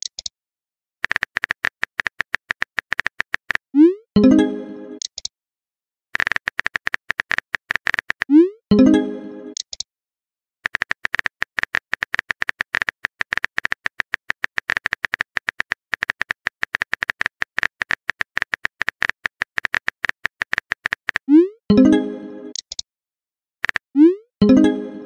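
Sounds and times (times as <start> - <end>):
phone keyboard key clicks: 9.6 - 9.8, 22.5 - 22.8.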